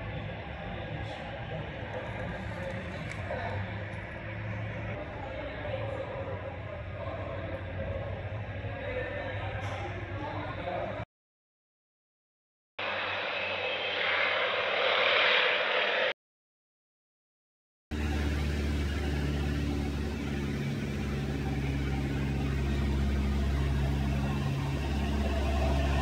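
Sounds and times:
light airplane engine droning: 0.0s - 10.9s, 12.8s - 16.1s, 17.9s - 26.0s
rushing noise: 12.8s - 16.2s.

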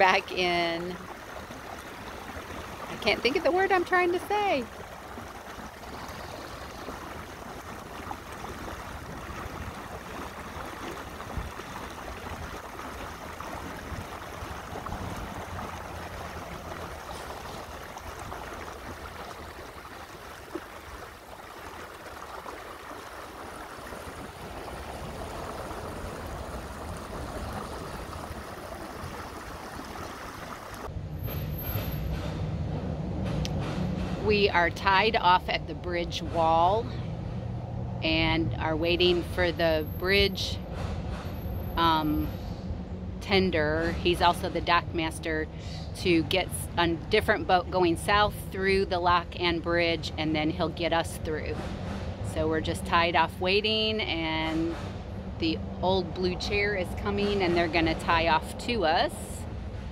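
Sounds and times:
water washing along boat hull: 0.0s - 30.9s, 46.0s - 59.9s
boat engine hum: 0.0s - 59.9s.

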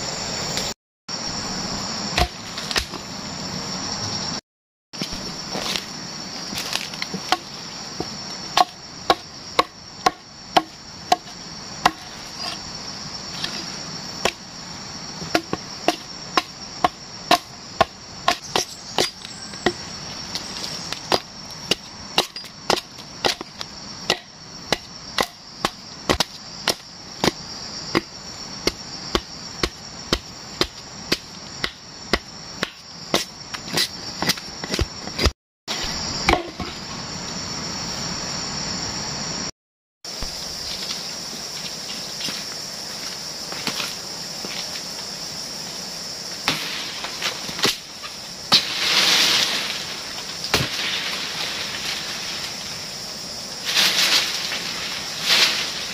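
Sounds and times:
insects droning: 0.0s - 55.9s
hatchet chopping log: 2.2s - 3.0s, 6.6s - 12.6s, 14.2s - 14.4s, 15.2s - 19.8s, 20.9s - 35.3s.

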